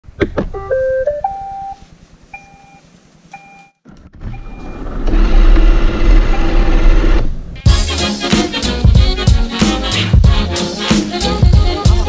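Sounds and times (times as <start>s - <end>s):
short beeps: 2.4s - 2.8s.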